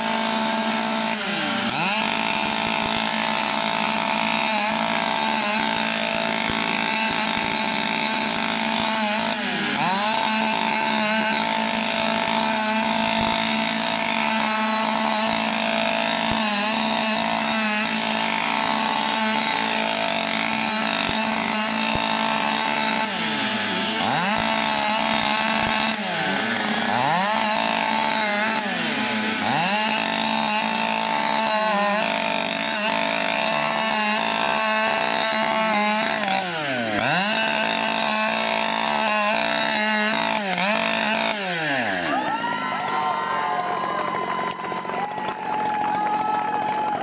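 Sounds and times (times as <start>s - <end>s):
chainsaws cutting wood: 0.0s - 47.0s.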